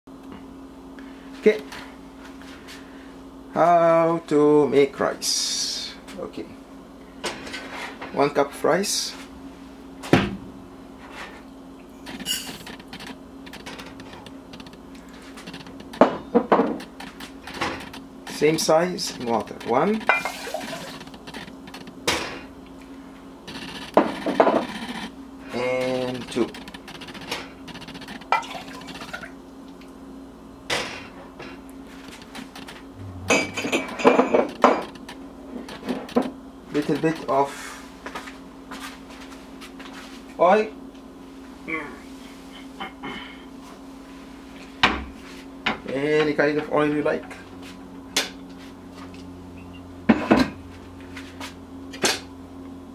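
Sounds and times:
metallic ring: 0:33.0 - 0:34.5.

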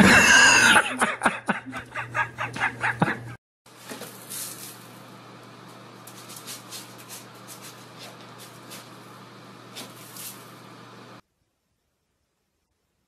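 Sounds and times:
cat scratching in litter box: 0:06.1 - 0:09.0, 0:09.6 - 0:10.5.

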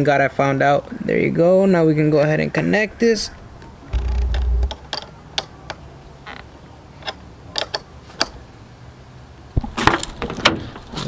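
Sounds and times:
dull low thud: 0:03.9 - 0:04.7
metallic clicks and knocks: 0:04.0 - 0:05.8.

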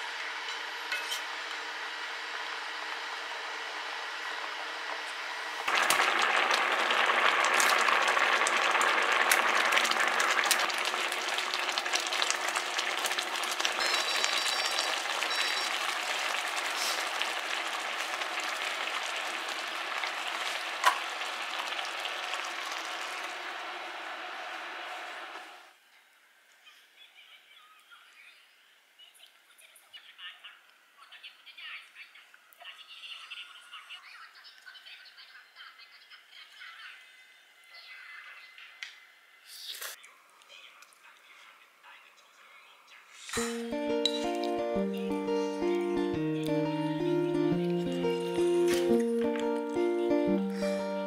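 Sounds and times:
sizzling and bubbling: 0:00.0 - 0:25.8, 0:43.2 - 0:51.0
porridge simmering in a pot: 0:01.8 - 0:25.8.

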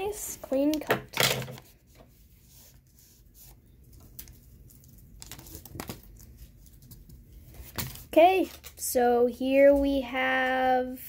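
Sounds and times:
foil wrapper crinkling: 0:03.9 - 0:07.2.

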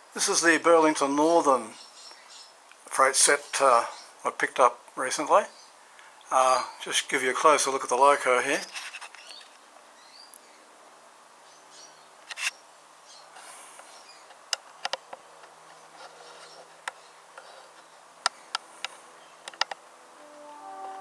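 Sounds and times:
low buzzing hum: 0:20.0 - 0:21.0.

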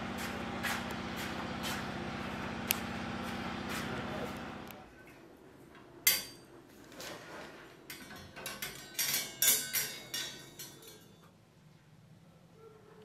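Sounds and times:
metal utensils clinking on stand: 0:06.1 - 0:06.5, 0:07.9 - 0:11.3.

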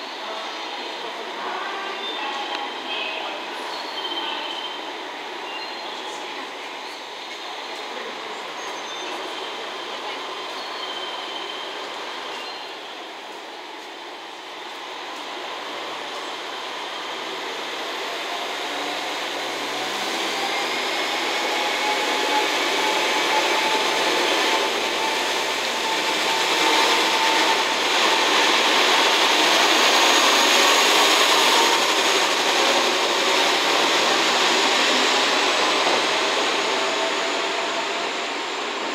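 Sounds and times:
diesel train accelerating past: 0:00.0 - 0:38.9.

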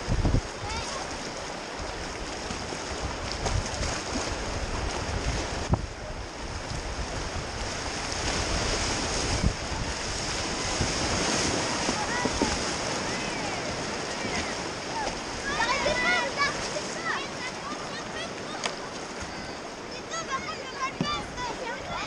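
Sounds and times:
wind on microphone: 0:00.0 - 0:16.7
paddle splashes: 0:00.0 - 0:22.0
rushing whitewater: 0:00.0 - 0:22.0.

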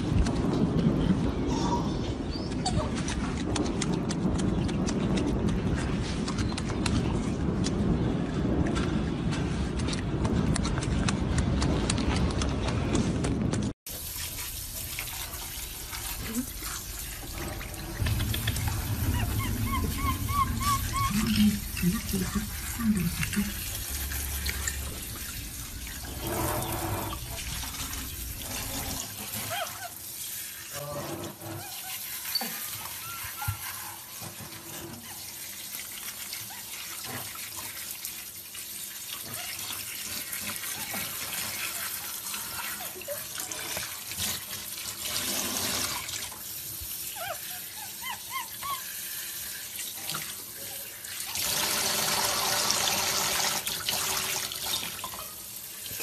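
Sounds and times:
shower spray running water: 0:13.9 - 0:30.8, 0:31.5 - 0:56.0.

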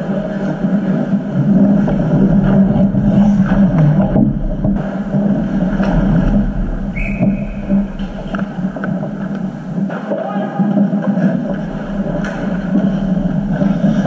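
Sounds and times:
steady low hum: 0:00.0 - 0:14.0
hockey sticks clacking: 0:10.8 - 0:14.0
skates scraping on ice: 0:10.8 - 0:14.0.

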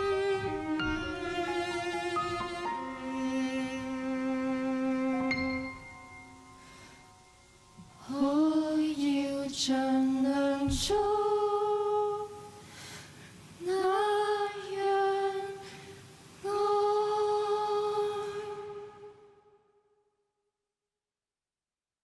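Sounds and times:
woman singing unaccompanied: 0:07.9 - 0:12.6, 0:13.6 - 0:19.3.

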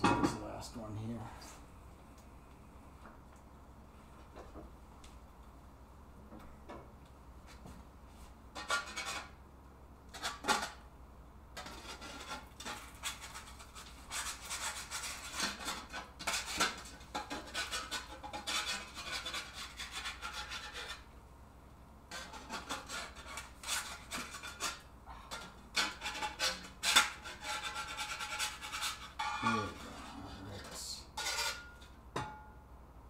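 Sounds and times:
metal spatula scraping a skillet: 0:08.6 - 0:09.3, 0:11.6 - 0:21.1, 0:22.1 - 0:31.9.

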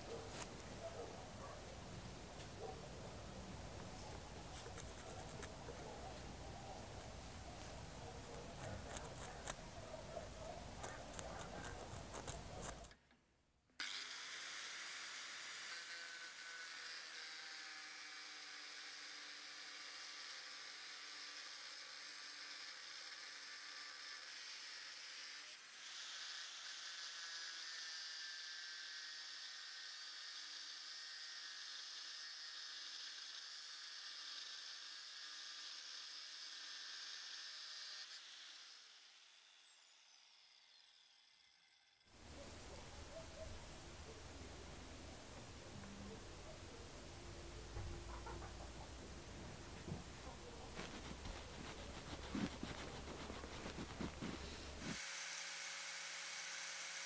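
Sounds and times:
rotary tool whine and grinding: 0:00.0 - 0:13.0, 0:13.8 - 0:43.4, 0:49.4 - 0:57.0
scratching on metal: 0:04.0 - 0:05.9, 0:07.7 - 0:12.9, 0:50.1 - 0:55.0.

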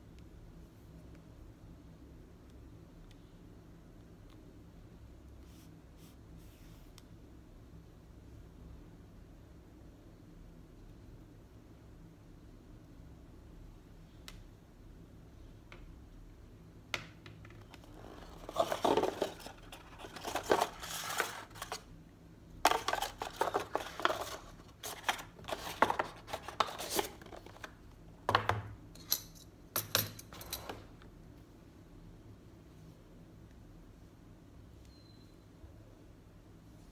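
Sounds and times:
cardboard packaging rustling: 0:17.7 - 0:21.9, 0:22.7 - 0:27.8.

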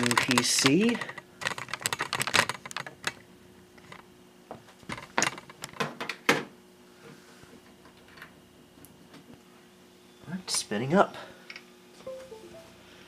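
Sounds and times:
plastic cable clicks and rattles: 0:00.0 - 0:03.2, 0:04.9 - 0:05.9.

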